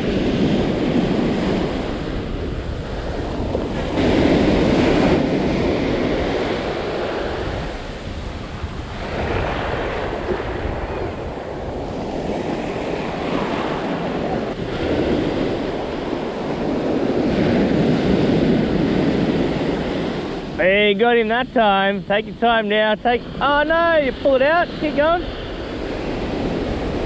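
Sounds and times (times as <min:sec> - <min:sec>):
ocean surf breaking: 0:00.0 - 0:27.0
wind on microphone: 0:00.0 - 0:27.0.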